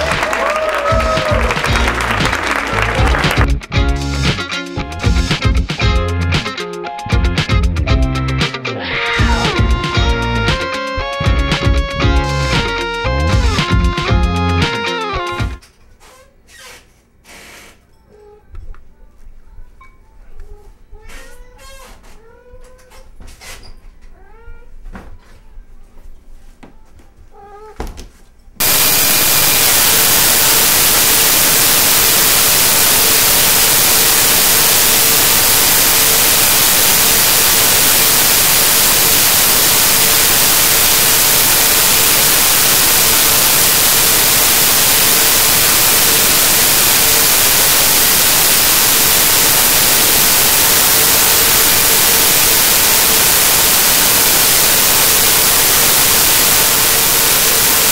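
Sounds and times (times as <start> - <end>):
loud static hiss: 0.0 - 15.6, 28.6 - 57.9.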